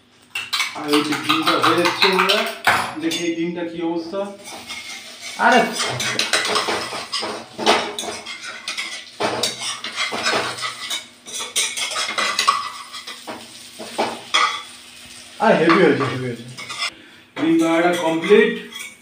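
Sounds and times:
oil sizzling: 4.3s - 17.0s
spatula scraping a frying pan: 4.4s - 14.8s, 16.0s - 17.0s.

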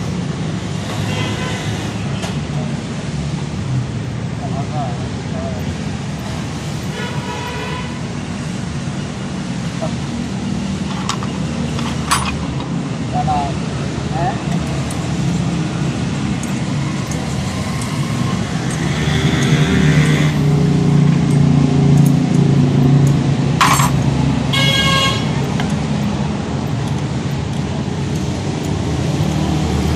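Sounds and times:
horn toot: 24.5s - 25.4s.

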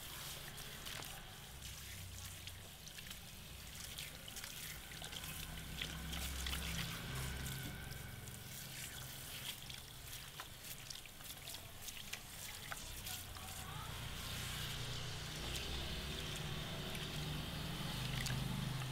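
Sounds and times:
shower sprayer running water: 0.0s - 18.9s.

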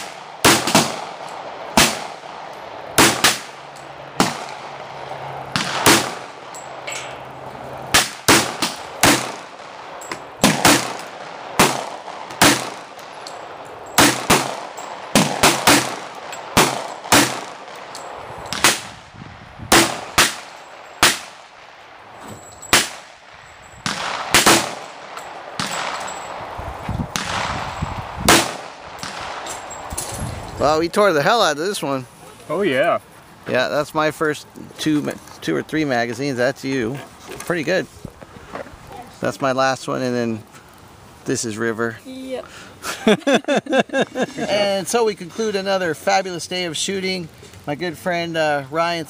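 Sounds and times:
pistol shots: 0.0s - 7.1s, 7.9s - 19.1s, 19.7s - 21.7s, 22.7s - 26.4s, 27.1s - 29.9s.

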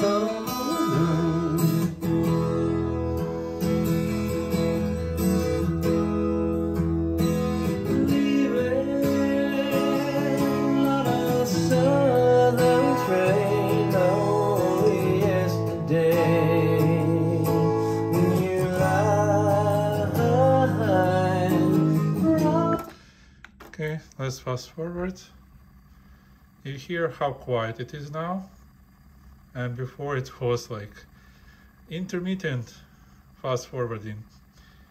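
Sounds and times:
person singing: 0.0s - 2.0s, 7.5s - 22.9s
strummed acoustic guitar: 0.0s - 23.3s.

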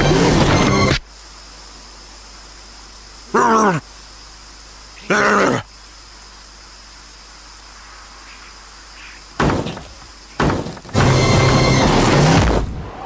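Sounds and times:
low steady hiss: 0.7s - 11.0s
gorilla growling: 3.3s - 3.9s, 5.0s - 5.7s
sudden thuds: 9.4s - 12.9s.

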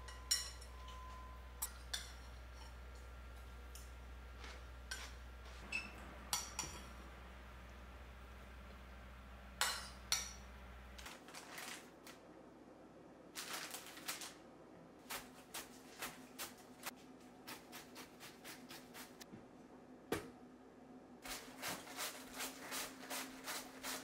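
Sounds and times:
spoon clinking on ceramic bowl: 0.0s - 2.8s
cabbage shaved on mandoline: 15.0s - 19.2s, 21.2s - 24.0s.

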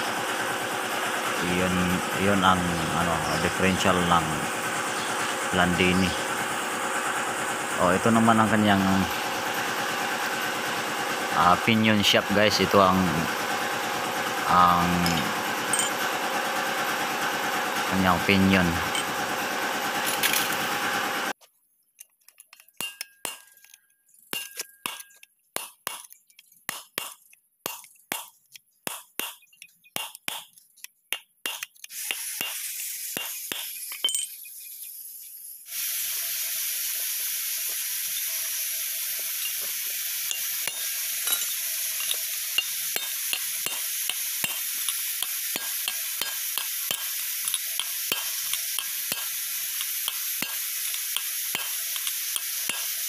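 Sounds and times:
metal tools clinking and tapping: 15.0s - 16.0s, 18.9s - 19.2s, 22.0s - 26.6s, 33.3s - 34.5s, 39.4s - 43.8s, 46.9s - 49.2s.

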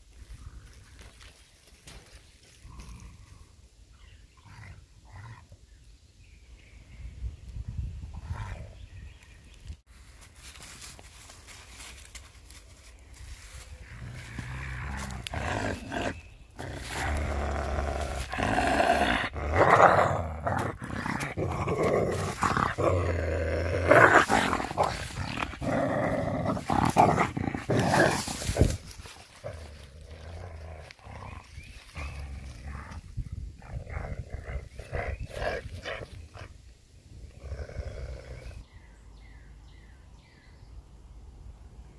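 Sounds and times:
coyote growling and snarling: 2.6s - 5.6s, 13.8s - 38.7s.

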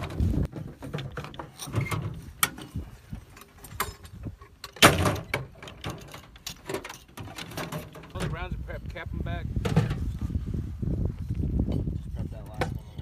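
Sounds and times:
metal clanks and knocks: 0.0s - 8.4s, 9.6s - 10.0s.

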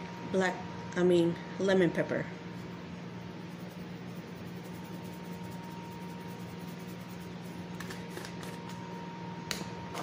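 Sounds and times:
electrical hum with high whine: 0.0s - 10.0s.

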